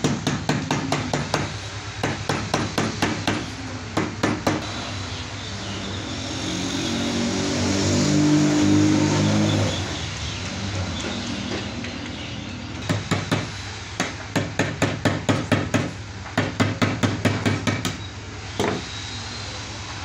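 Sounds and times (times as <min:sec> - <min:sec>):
machine drone: 0:03.6 - 0:13.7.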